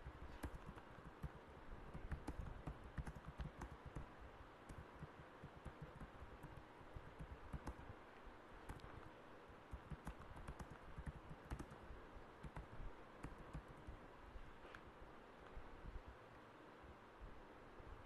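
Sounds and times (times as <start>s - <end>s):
low background noise: 0.0s - 18.0s
keyboard key clicks: 0.4s - 4.1s, 4.7s - 7.9s, 9.7s - 11.8s, 12.4s - 13.9s.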